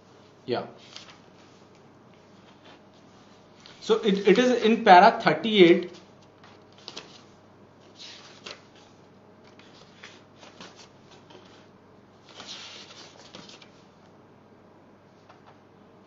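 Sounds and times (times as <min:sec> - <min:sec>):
paper rustling: 0:00.8 - 0:04.8, 0:05.8 - 0:13.9.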